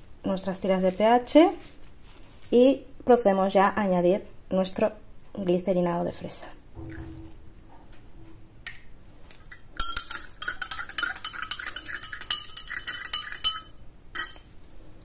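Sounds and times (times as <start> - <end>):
metal spatula clinking glass beaker: 9.5 - 14.5.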